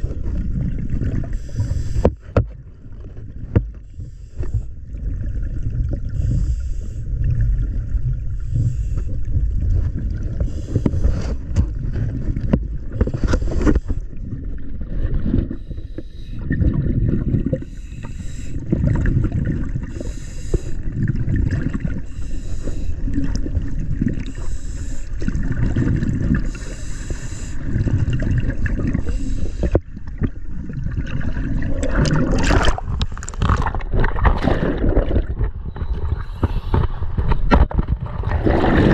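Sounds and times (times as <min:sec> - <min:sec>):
gurgling exhaled bubbles: 0:00.0 - 0:03.6, 0:04.7 - 0:15.6, 0:16.4 - 0:38.9
scuba diver breathing through regulator: 0:01.2 - 0:02.4, 0:03.9 - 0:04.9, 0:06.1 - 0:07.2, 0:08.4 - 0:09.3, 0:10.4 - 0:11.6, 0:12.9 - 0:14.2, 0:15.5 - 0:16.5, 0:17.5 - 0:18.9, 0:19.7 - 0:21.0, 0:21.9 - 0:23.4, 0:24.2 - 0:29.8.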